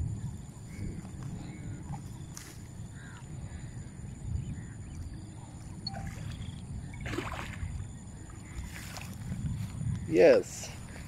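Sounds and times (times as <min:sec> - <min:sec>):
wind rumbling on microphone: 0:00.0 - 0:11.0
faint bird calls: 0:00.6 - 0:08.9.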